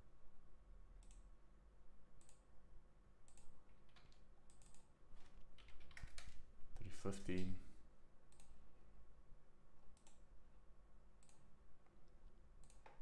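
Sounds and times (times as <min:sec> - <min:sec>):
mouse and keyboard clicks: 0:12.6 - 0:13.0.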